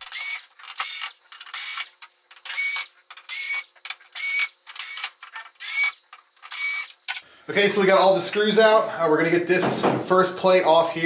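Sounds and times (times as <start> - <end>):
cordless screwdriver whirring: 0.0 - 7.0.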